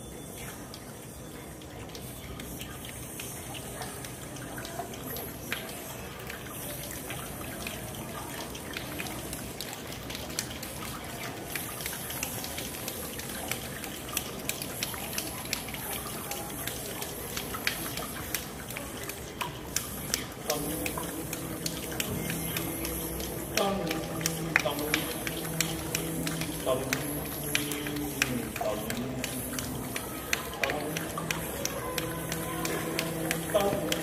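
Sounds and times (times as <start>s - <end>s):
tongue clicks: 16.6s - 34.0s.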